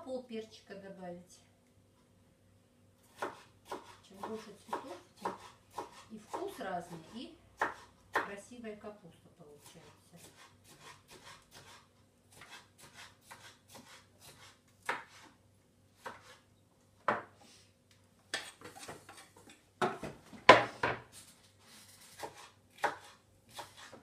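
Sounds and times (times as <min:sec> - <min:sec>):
knife chopping on wooden board: 0:03.1 - 0:08.3, 0:09.6 - 0:15.3, 0:16.0 - 0:16.4, 0:22.1 - 0:24.0.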